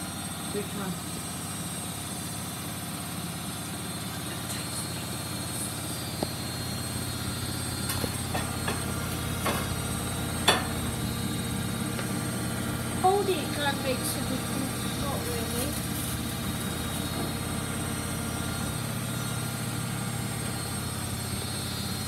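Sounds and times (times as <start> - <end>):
washing machine spinning: 0.0 - 22.0.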